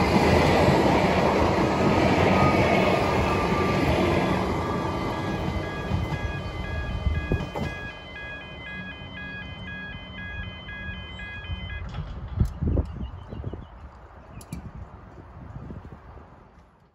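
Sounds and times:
electric train rumble: 0.0 - 12.6
crossing alarm alternating tones: 2.3 - 12.0.

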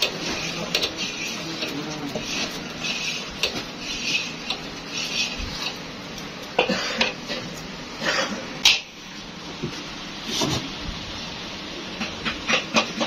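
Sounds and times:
scraper scraping iron pan: 0.0 - 5.8.

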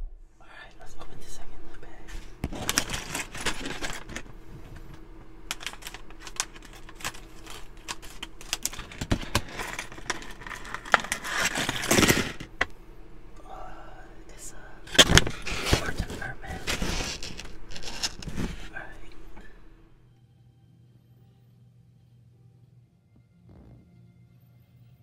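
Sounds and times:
plastic bag crinkling: 2.1 - 12.6, 14.9 - 19.5.

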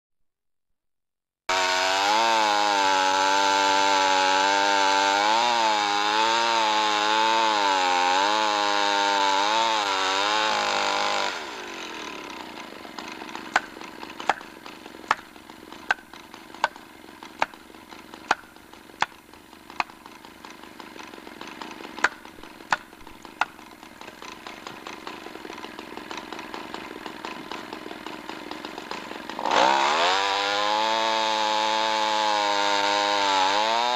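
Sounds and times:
chainsaw cutting wood: 1.5 - 33.9
sharp knocks on felling wedge: 13.4 - 21.0, 21.6 - 26.4.

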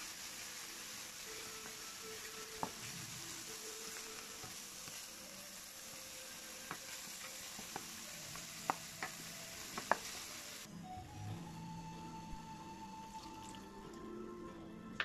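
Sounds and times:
meat and onion sizzling in pan: 0.0 - 10.7.

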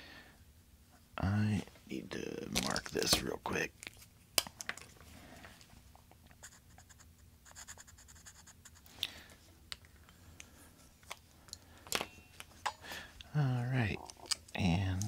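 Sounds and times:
marker scratching on metal: 6.4 - 8.9.

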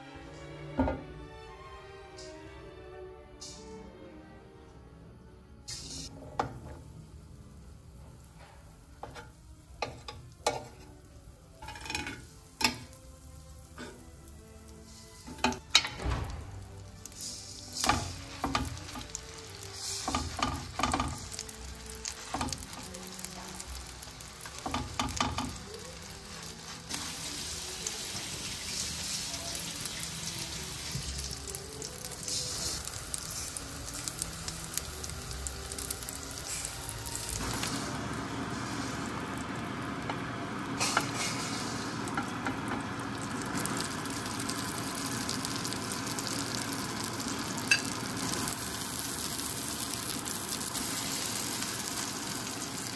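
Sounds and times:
patties sizzling in a grill pan: 5.7 - 52.9
metal utensils clinking: 11.6 - 13.0, 47.7 - 48.0.

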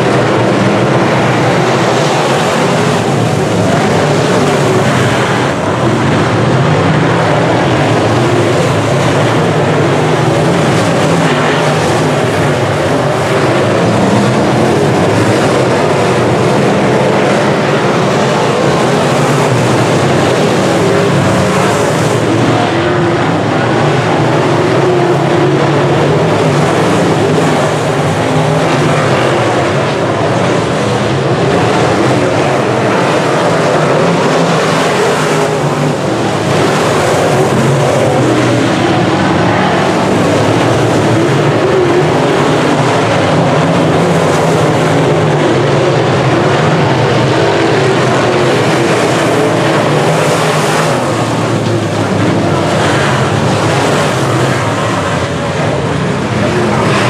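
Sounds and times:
race car engines running hard: 0.0 - 57.0.

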